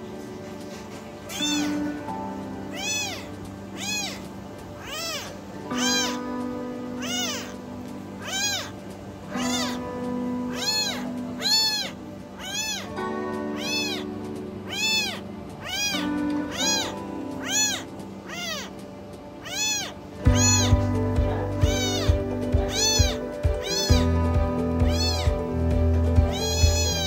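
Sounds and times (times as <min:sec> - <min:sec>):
soft background music: 0:00.0 - 0:27.0
kitten meowing: 0:01.3 - 0:02.0, 0:02.7 - 0:18.8, 0:19.4 - 0:27.0.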